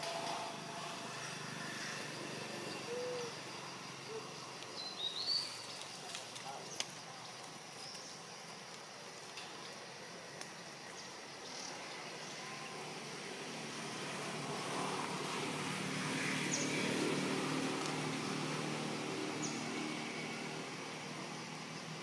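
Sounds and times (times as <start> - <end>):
passing vehicle engine hum: 12.7 - 22.0.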